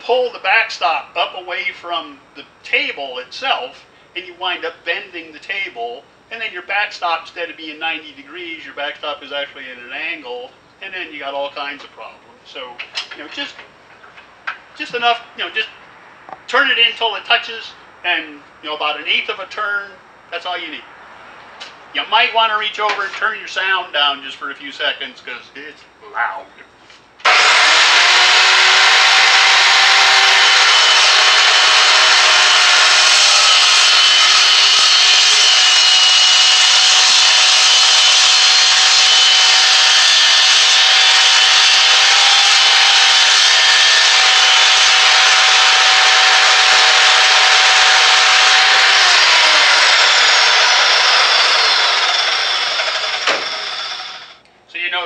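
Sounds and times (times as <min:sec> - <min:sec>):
saw blade winding down: 0:27.2 - 0:54.4
saw cutting metal pipe: 0:27.2 - 0:54.4.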